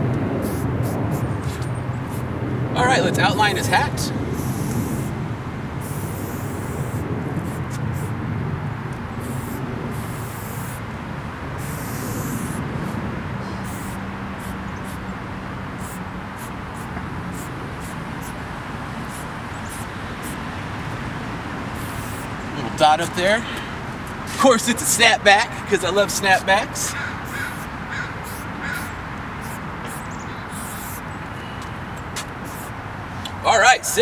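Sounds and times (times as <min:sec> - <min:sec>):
spray paint can hissing: 0:00.4 - 0:02.3, 0:04.4 - 0:05.1, 0:05.8 - 0:08.1, 0:09.2 - 0:10.8, 0:11.6 - 0:13.0, 0:13.6 - 0:15.0, 0:15.8 - 0:18.4, 0:19.0 - 0:20.4, 0:21.8 - 0:22.3, 0:27.2 - 0:31.1, 0:32.4 - 0:32.8.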